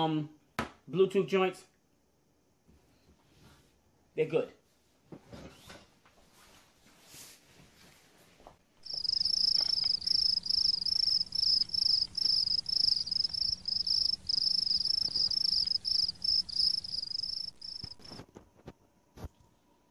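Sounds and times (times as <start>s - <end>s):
crickets chirping: 8.8s - 18.4s.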